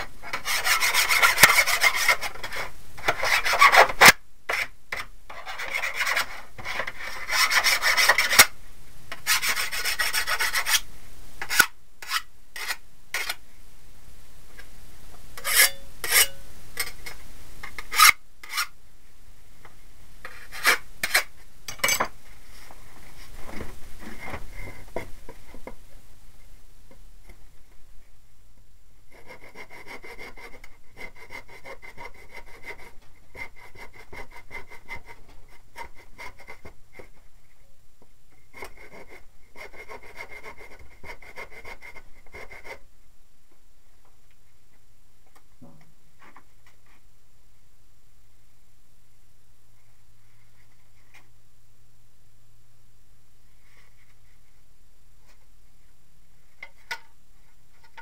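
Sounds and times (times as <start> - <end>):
hand file scraping steel: 0.2 - 8.5, 9.1 - 13.4, 15.4 - 17.0, 17.7 - 18.8, 20.2 - 21.3, 29.1 - 36.7, 38.5 - 42.8.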